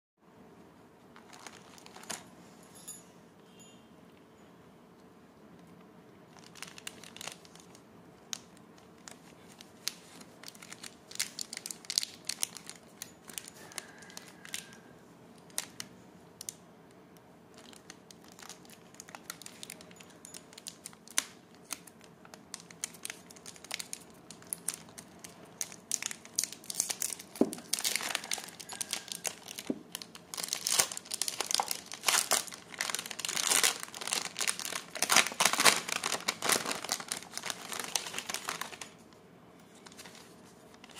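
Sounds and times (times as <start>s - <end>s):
plastic wrapper crinkling and tearing: 1.1s - 2.3s, 6.3s - 14.8s, 15.4s - 16.6s, 17.5s - 39.1s, 39.7s - 40.9s
foil wrap crackling: 1.2s - 2.2s, 6.3s - 14.8s, 17.5s - 39.0s, 39.8s - 40.9s.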